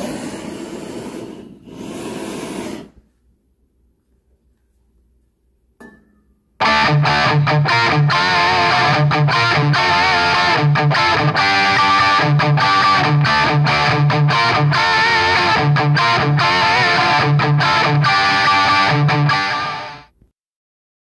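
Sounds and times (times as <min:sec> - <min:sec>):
loud guitar music: 0:06.6 - 0:20.1.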